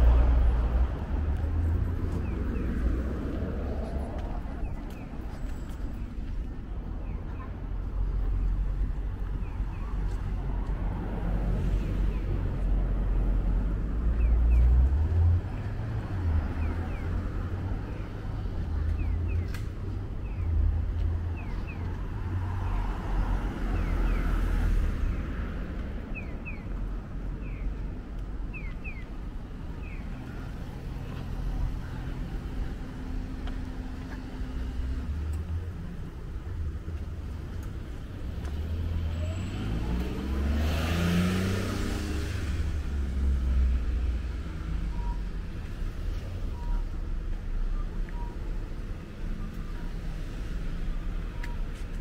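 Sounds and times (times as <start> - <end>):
low rumble of road noise: 0.0 - 52.0
vehicle accelerating past: 38.4 - 44.4.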